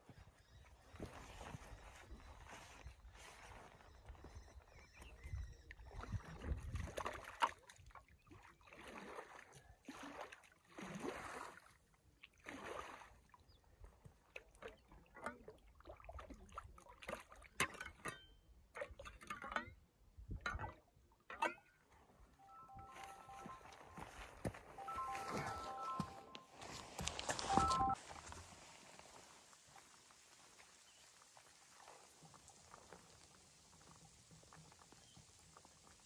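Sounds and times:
shovel splashing in water: 8.7 - 11.7, 12.4 - 13.2.

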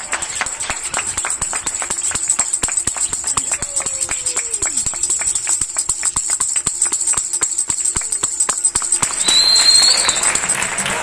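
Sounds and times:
applause: 0.0 - 11.0
tambourine jingling rhythm: 0.0 - 11.0
high whistle: 7.8 - 11.0.

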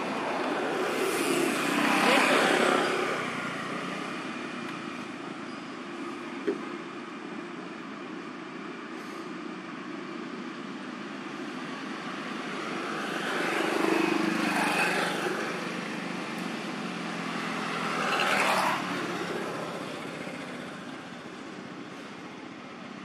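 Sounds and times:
vehicles passing by: 0.0 - 23.0.

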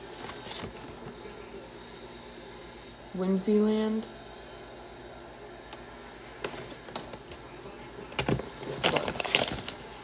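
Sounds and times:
paper and packaging crinkling: 0.0 - 1.1, 8.2 - 10.0.

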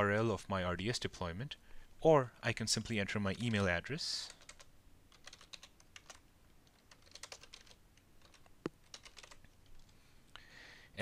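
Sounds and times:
typing on computer keyboard: 4.3 - 9.5.

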